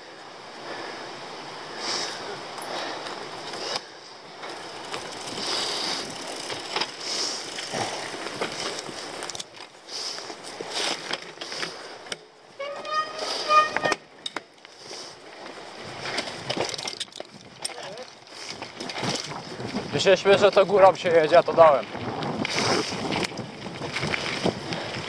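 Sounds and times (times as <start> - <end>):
tyres crunching over stones: 3.5 - 11.9, 14.2 - 25.0
bike rattling and knocking: 3.6 - 14.6, 15.3 - 25.0.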